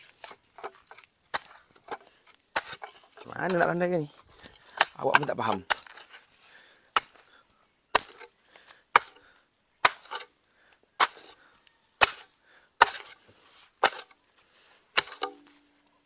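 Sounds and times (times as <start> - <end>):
hoe chopping into earth: 0.2 - 3.8, 4.7 - 6.2, 7.0 - 7.2, 7.9 - 8.3, 8.9 - 9.2, 9.8 - 10.3, 11.0 - 11.4, 12.0 - 13.2, 13.8 - 14.1, 14.9 - 15.4.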